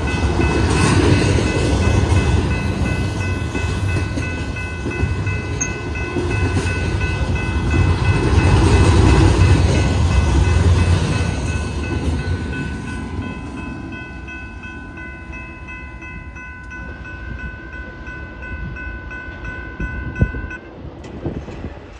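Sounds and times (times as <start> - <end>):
crossing bell ringing: 0.0 - 20.8
freight train rumble: 0.0 - 21.9.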